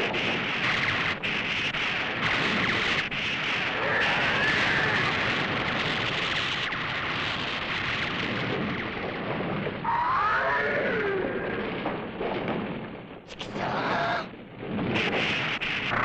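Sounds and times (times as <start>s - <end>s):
explosion and fire effects: 0.0s - 16.0s
monster cry rising and falling: 3.8s - 5.1s, 9.9s - 11.7s, 13.3s - 14.3s.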